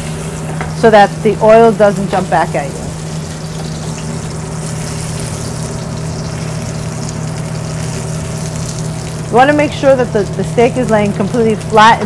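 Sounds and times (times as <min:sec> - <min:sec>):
low mechanical hum: 0:00.0 - 0:12.0
steak sizzling in hot oil: 0:00.0 - 0:12.0.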